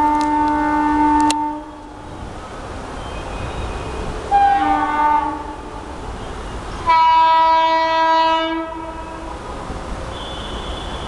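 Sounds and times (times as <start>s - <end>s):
locomotive dual-tone horn: 0.0s - 1.8s, 4.3s - 5.7s, 6.8s - 9.3s, 10.1s - 11.0s.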